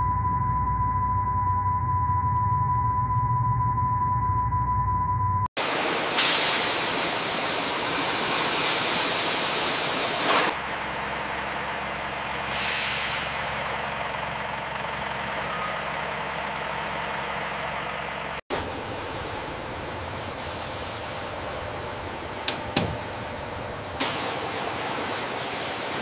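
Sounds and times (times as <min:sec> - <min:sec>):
air brakes hissing: 0:06.2 - 0:10.5, 0:12.4 - 0:13.6, 0:19.5 - 0:25.9
truck engines running: 0:09.5 - 0:26.0.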